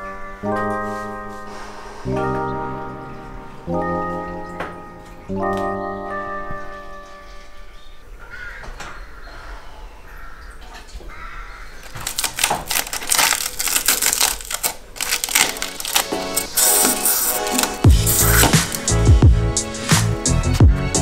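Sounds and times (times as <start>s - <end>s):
electronic music: 0.0s - 7.6s, 15.2s - 21.0s
rapid clicking beat: 16.4s - 21.0s.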